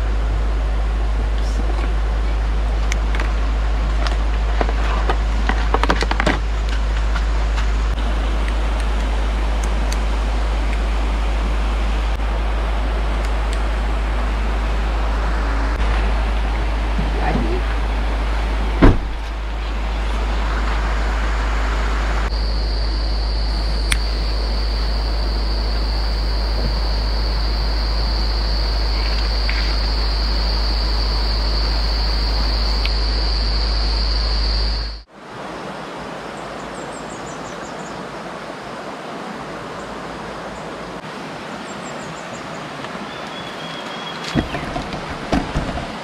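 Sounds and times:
deep constant hum: 0:00.0 - 0:35.1
river rushing: 0:00.0 - 0:46.0
high insect trill: 0:20.6 - 0:35.1
faint bird chirps: 0:41.9 - 0:44.8.

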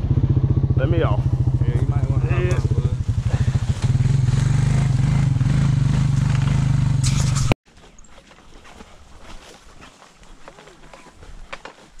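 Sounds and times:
small vehicle engine running: 0:00.0 - 0:07.5
faint outdoor sounds: 0:07.0 - 0:12.0.

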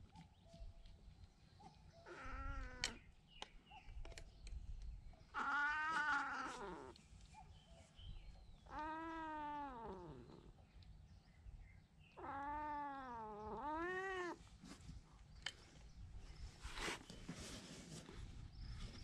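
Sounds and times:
cat yowling: 0:02.0 - 0:03.0, 0:05.4 - 0:07.0, 0:08.6 - 0:10.2, 0:12.2 - 0:14.4.

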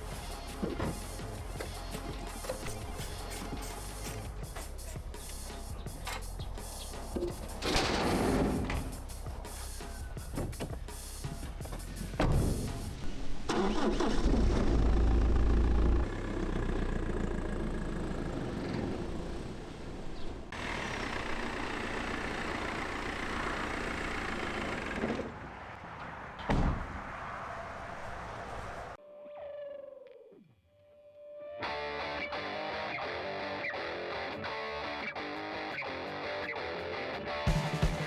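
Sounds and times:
engine cranking and running: 0:13.5 - 0:19.5, 0:20.5 - 0:25.4.

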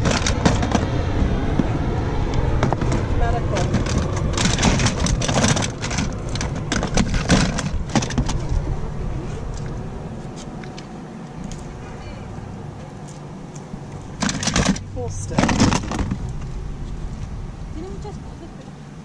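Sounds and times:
steady low rumble: 0:00.0 - 0:19.0
plastic toys clattering in a bin: 0:03.6 - 0:08.5.

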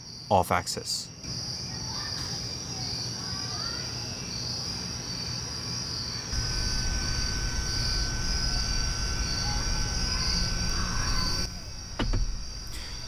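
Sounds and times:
crickets chirring: 0:00.0 - 0:13.0
air conditioner drone: 0:02.3 - 0:13.0.

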